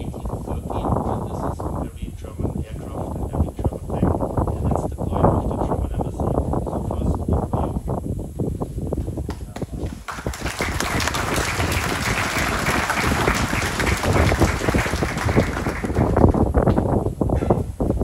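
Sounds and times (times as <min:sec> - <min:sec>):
audience applauding: 0:09.6 - 0:16.5.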